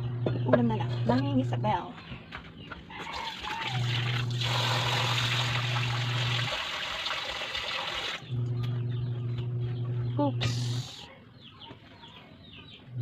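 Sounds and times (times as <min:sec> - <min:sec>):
water pouring: 0:03.2 - 0:08.2.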